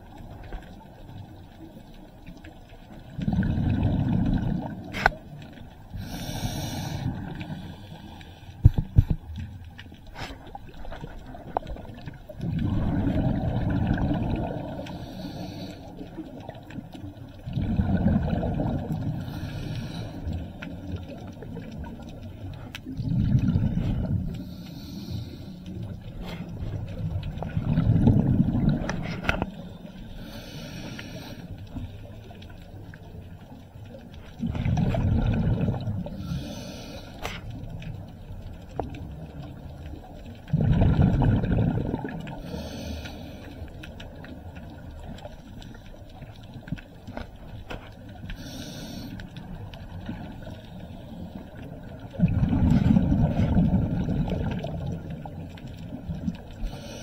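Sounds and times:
exhaled bubbles burbling: 2.8s - 6.2s, 10.2s - 15.2s, 16.1s - 19.4s, 20.2s - 24.6s, 25.8s - 29.6s, 34.1s - 36.3s, 37.5s - 42.7s, 51.3s - 56.8s
regulator inhale hiss: 5.9s - 8.7s, 14.8s - 16.2s, 19.2s - 20.4s, 24.4s - 26.5s, 30.0s - 31.9s, 36.1s - 37.5s, 42.4s - 43.8s, 48.3s - 49.4s, 56.6s - 57.0s.

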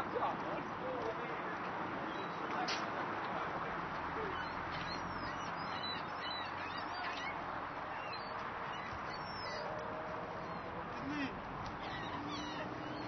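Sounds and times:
birds chirping: 2.0s - 2.6s, 4.0s - 13.0s.

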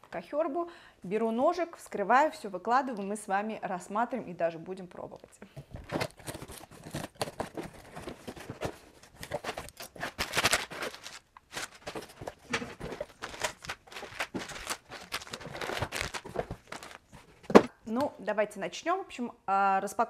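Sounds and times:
cardboard rustling: 5.6s - 17.7s
knife cutting packing tape: 6.0s - 7.8s, 9.2s - 11.9s.

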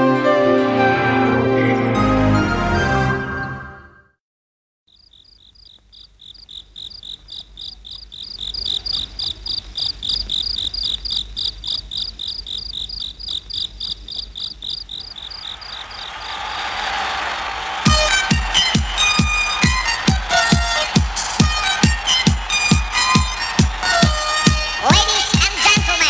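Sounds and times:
pulsing cricket-like chirping: 4.9s - 16.1s.

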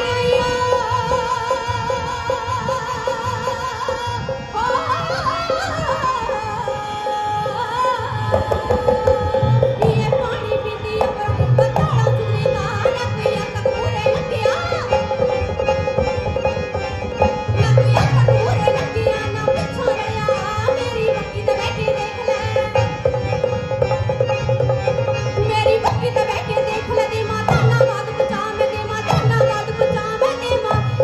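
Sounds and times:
woman singing folk song: 0.0s - 15.1s, 25.4s - 31.0s
hand drum rhythm: 8.3s - 31.0s.

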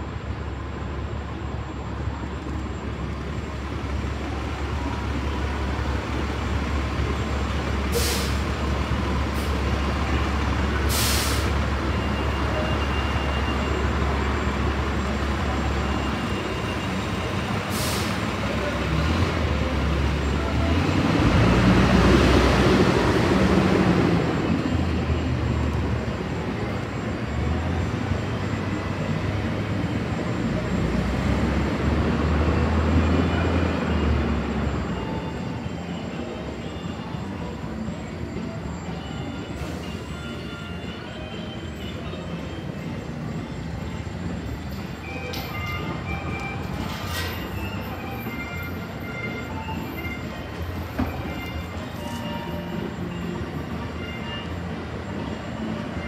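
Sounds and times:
heavy vehicle engine running: 0.0s - 56.0s
air-brake hisses: 7.9s - 8.5s, 10.9s - 11.6s, 17.7s - 18.3s.

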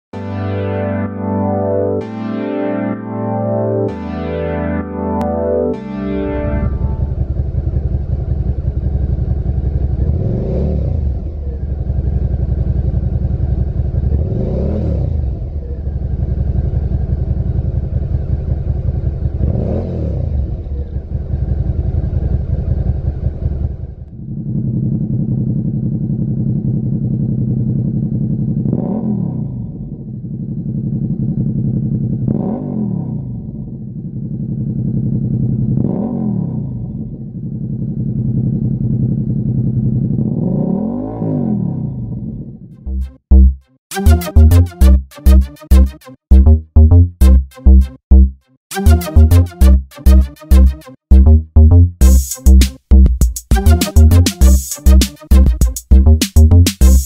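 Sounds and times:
motorcycle engine idling and revving: 7.0s - 43.6s.

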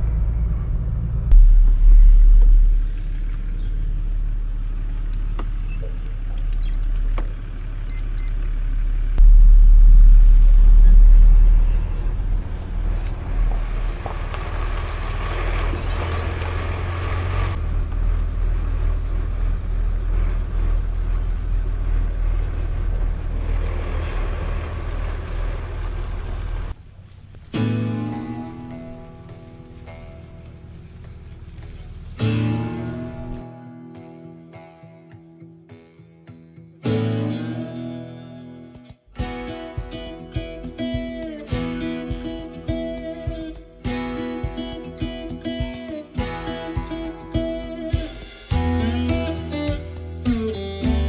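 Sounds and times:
vehicle engine and tyre rumble: 0.0s - 33.6s.

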